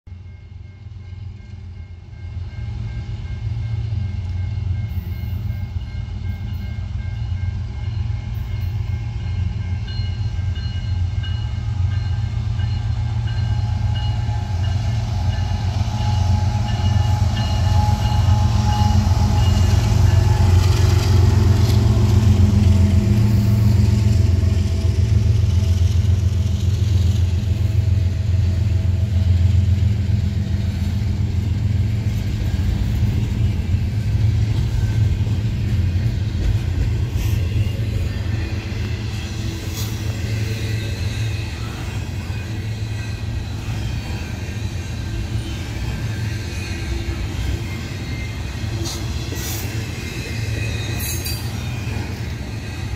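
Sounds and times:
diesel locomotive engine rumble: 0.1 - 52.9
train cars rolling: 0.6 - 52.9.

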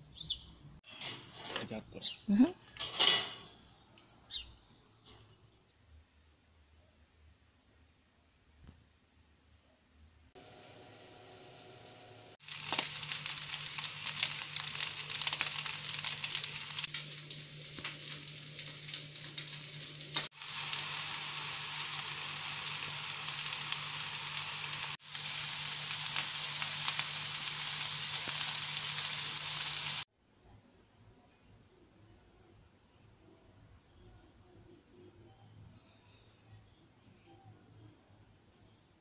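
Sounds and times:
food sizzling in a wok: 10.4 - 30.1.

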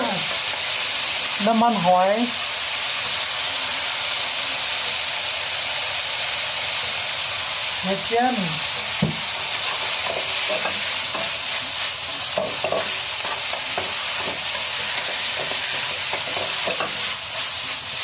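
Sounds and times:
vegetables sizzling in a wok: 0.0 - 18.0
wooden spatula scraping wok: 9.2 - 18.0.

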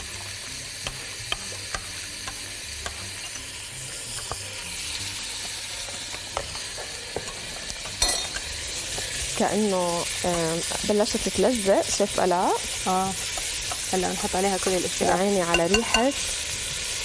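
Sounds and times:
food sizzling in pot: 0.0 - 17.0
spoon clinking against glass jug: 15.5 - 16.1.

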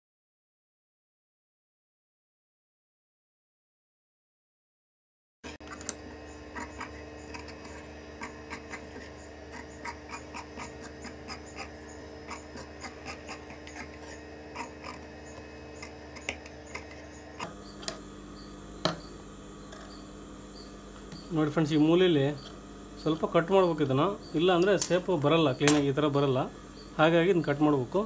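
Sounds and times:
steady hum: 5.5 - 28.0.

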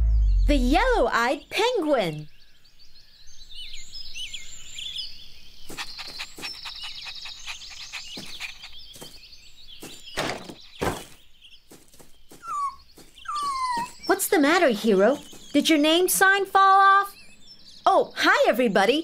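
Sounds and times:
birds chirping: 0.0 - 19.0
wooden sign thudding on ground: 9.8 - 11.2.

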